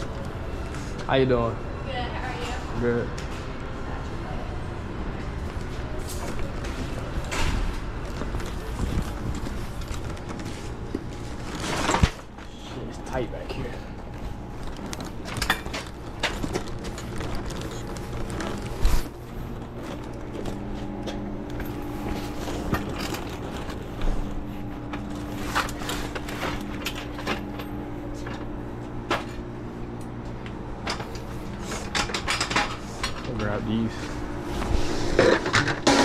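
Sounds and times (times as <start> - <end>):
low steady hum: 0.0 - 36.0
hand truck and cases rattling: 6.1 - 28.5.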